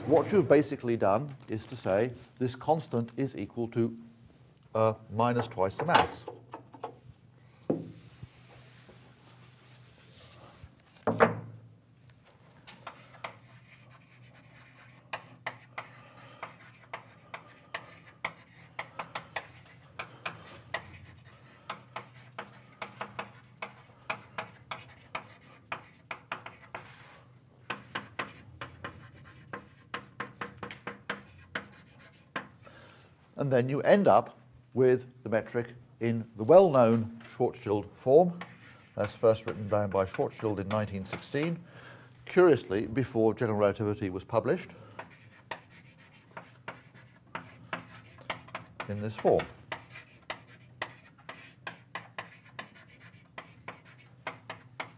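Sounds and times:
writing taps and scratches on board: 0:12.8 - 0:26.9, 0:27.6 - 0:32.5, 0:38.4 - 0:41.5, 0:45.0 - 0:54.9.

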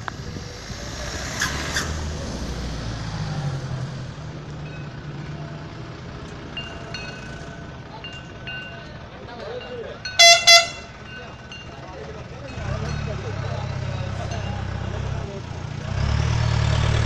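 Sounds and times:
vehicle engine passing by: 0:00.0 - 0:07.8, 0:12.1 - 0:17.0.

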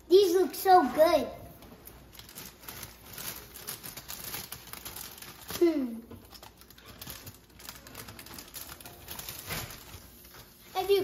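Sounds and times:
plastic bag crinkling: 0:01.5 - 0:11.0.

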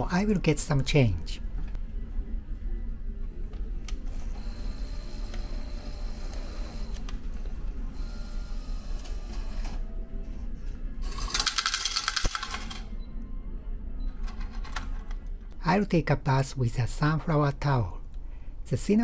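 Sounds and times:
coins rattling into plastic tray: 0:11.1 - 0:12.8.

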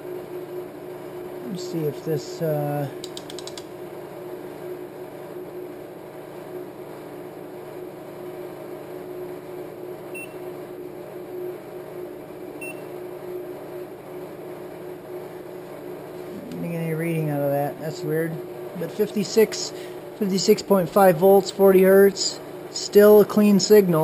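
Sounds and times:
amplifier test tone hum: 0:09.7 - 0:14.0
faint short beeps: 0:12.6 - 0:12.8.

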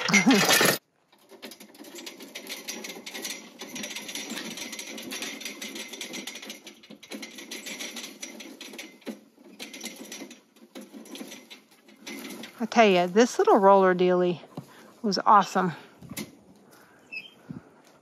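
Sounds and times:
wire fence roll rattling: 0:00.0 - 0:14.4.

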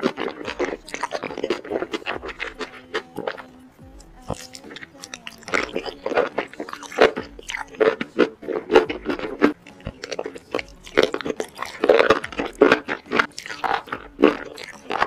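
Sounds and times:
slurping and chewing: 0:00.0 - 0:15.0
wet mouth clicks and smacks: 0:04.3 - 0:15.0.

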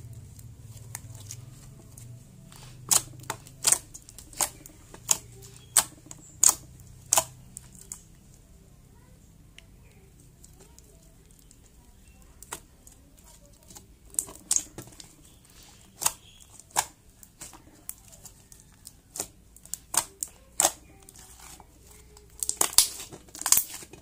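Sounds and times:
slime popping and clicking: 0:02.8 - 0:08.1, 0:13.7 - 0:15.3, 0:15.9 - 0:21.3, 0:21.9 - 0:24.0.

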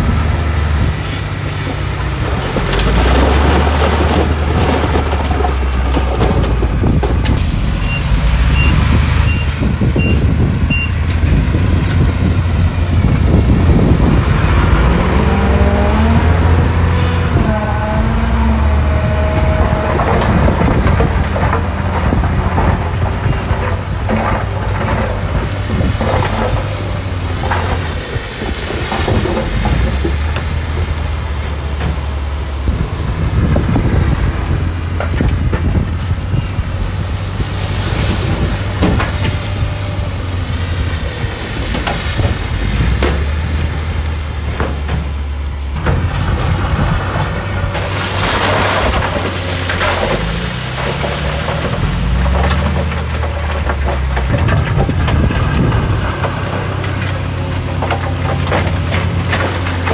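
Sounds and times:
diesel construction machinery running: 0:00.0 - 0:59.9
knocks and clatters: 0:01.0 - 0:07.6, 0:08.2 - 0:59.9.

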